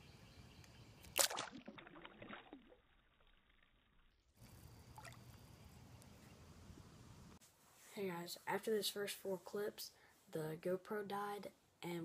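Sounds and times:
faint outdoor background: 0.0s - 12.0s
water gurgling and dripping: 1.0s - 5.4s
water splashing at pond: 1.0s - 5.6s.

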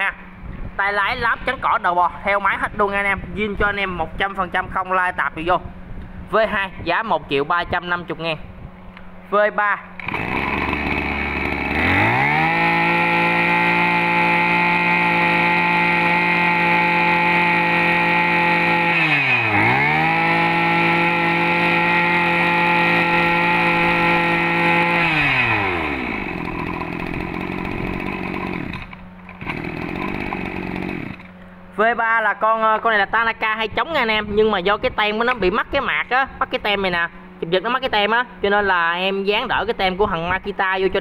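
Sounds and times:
brush cutter engine revving: 9.9s - 31.4s.

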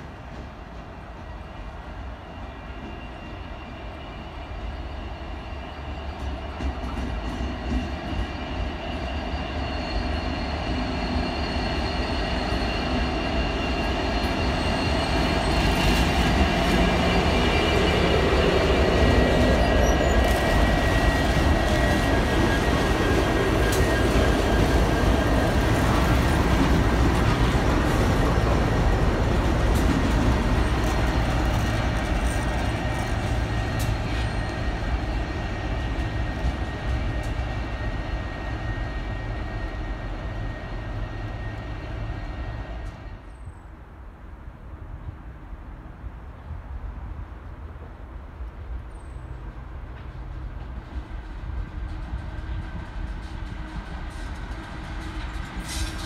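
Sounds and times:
wheels squealing: 7.9s - 42.6s.

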